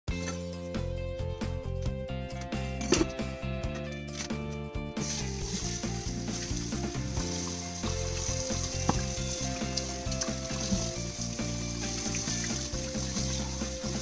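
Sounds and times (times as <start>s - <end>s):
background music: 0.1s - 14.0s
faucet running into steel sink: 5.0s - 14.0s.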